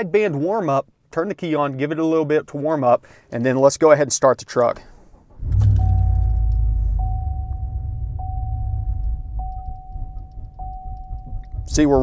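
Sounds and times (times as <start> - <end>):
pickup engine struggling: 4.8 - 10.6
thin high tone: 5.6 - 11.7.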